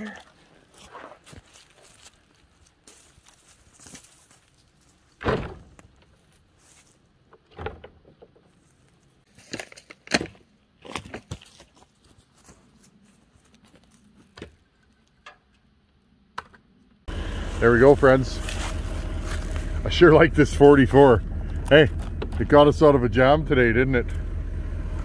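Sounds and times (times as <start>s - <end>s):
wooden thumps and knocks: 7.3s - 8.5s, 16.4s - 16.7s.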